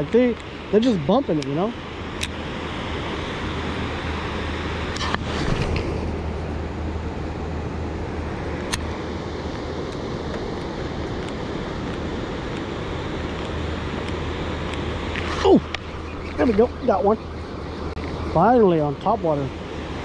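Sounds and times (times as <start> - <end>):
wind: 0.0 - 20.0
moving water: 9.7 - 20.0
low hum: 14.4 - 20.0.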